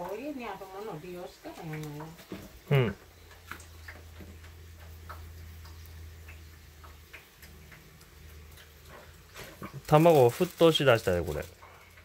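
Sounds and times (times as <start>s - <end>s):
faint irregular ticking: 0.0s - 12.0s.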